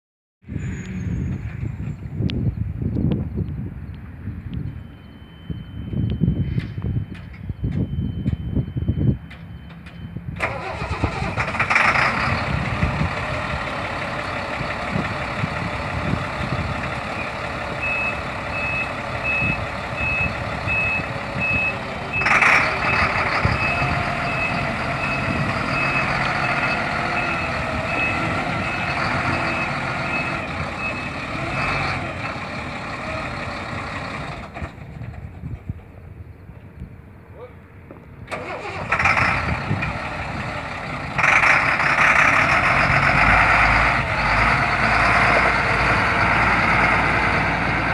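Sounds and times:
truck diesel engine running: 10.4s - 36.0s, 38.3s - 47.9s.

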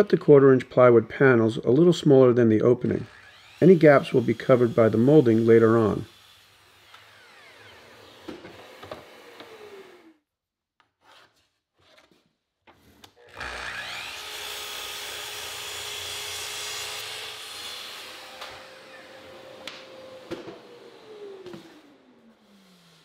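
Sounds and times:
miter saw cutting plywood: 2.8s - 10.2s, 13.2s - 23.0s.

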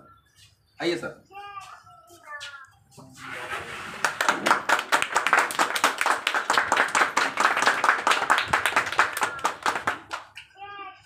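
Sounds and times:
people clapping: 3.7s - 10.6s.

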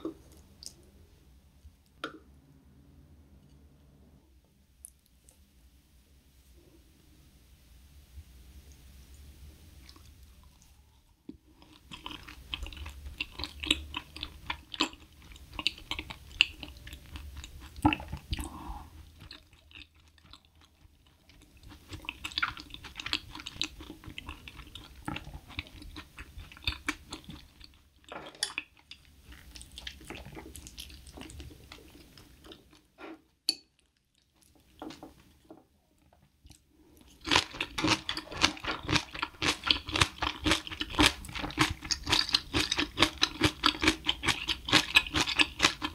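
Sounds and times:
mouth chewing food: 11.6s - 33.0s, 36.0s - 45.9s.

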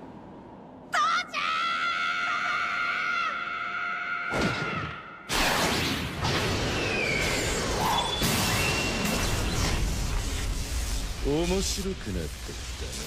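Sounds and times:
boy screaming: 0.9s - 4.9s.

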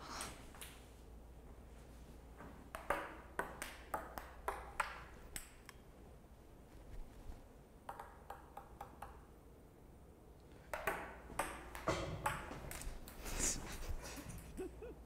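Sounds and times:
rustling: 6.5s - 7.5s.

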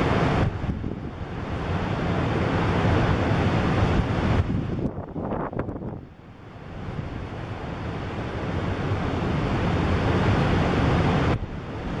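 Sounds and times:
wind buffeting microphone: 0.0s - 6.1s
heavy ocean surf breaking: 0.0s - 12.0s.

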